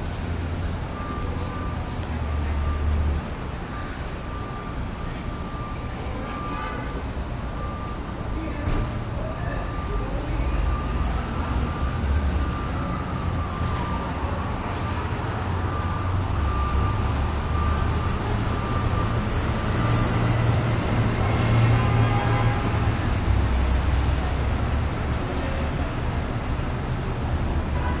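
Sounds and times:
traffic rumble: 0:00.0 - 0:28.0.

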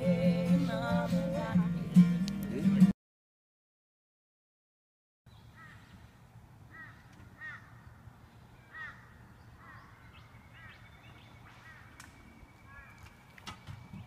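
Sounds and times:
crow cawing: 0:05.6 - 0:05.9, 0:06.7 - 0:07.8, 0:08.7 - 0:10.8, 0:11.6 - 0:12.0, 0:12.7 - 0:13.0.

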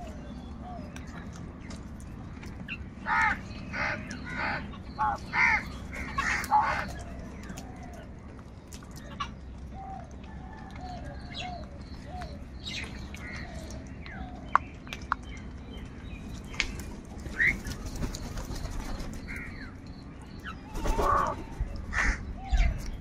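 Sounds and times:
crows cawing: 0:03.0 - 0:07.0, 0:20.8 - 0:22.6.

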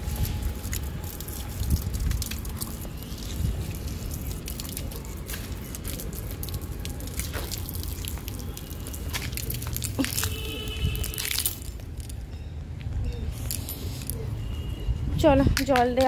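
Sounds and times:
hose water splashing on plants: 0:00.0 - 0:11.6.

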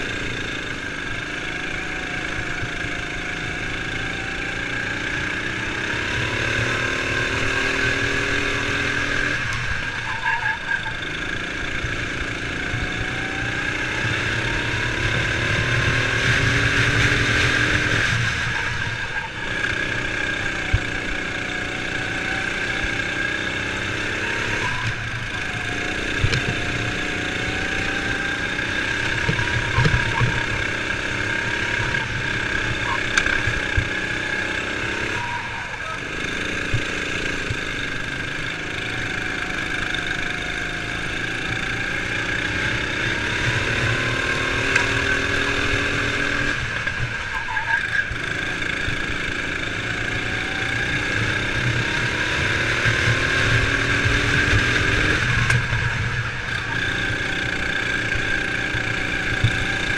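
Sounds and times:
kart engine revving: 0:00.0 - 0:59.9.

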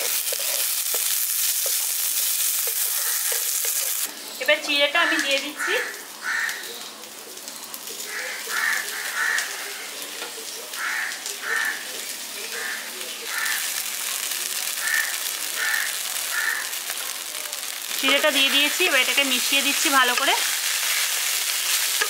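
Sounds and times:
frying pan sizzling: 0:00.0 - 0:22.0
crow cawing: 0:02.9 - 0:03.5, 0:05.1 - 0:06.7, 0:08.1 - 0:09.8, 0:10.8 - 0:11.9, 0:12.5 - 0:13.8, 0:14.8 - 0:16.8.

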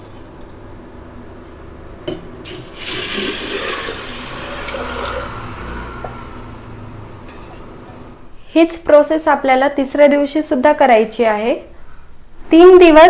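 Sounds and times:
water pouring into steel container: 0:02.4 - 0:05.8.

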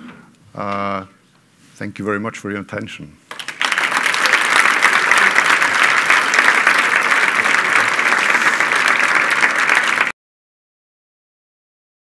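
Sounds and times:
audience applauding: 0:03.3 - 0:10.2.

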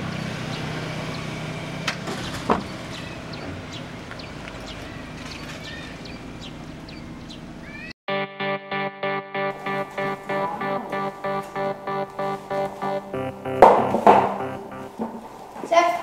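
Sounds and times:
sharp knocks: 0:12.2 - 0:14.9.

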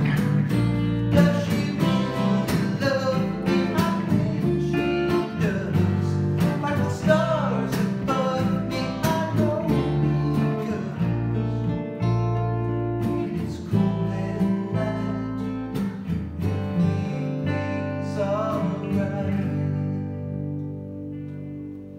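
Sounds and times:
acoustic guitars: 0:00.0 - 0:21.9
electric bass guitar: 0:00.0 - 0:21.9
man singing: 0:01.1 - 0:11.7, 0:13.1 - 0:15.8, 0:16.6 - 0:20.3.

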